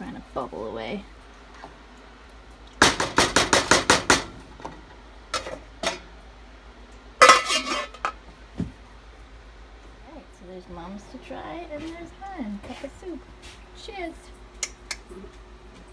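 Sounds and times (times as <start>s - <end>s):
spoon knocking on metal pot: 2.8s - 4.3s
metal clank ringing on pot: 7.2s - 8.2s.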